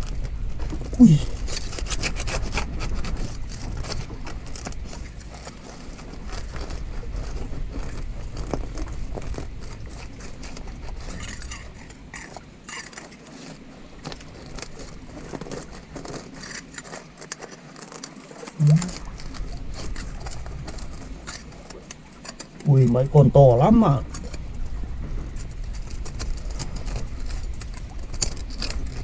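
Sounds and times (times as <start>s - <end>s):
shells clicking and scraping on rock: 0.0s - 24.6s, 25.2s - 29.0s.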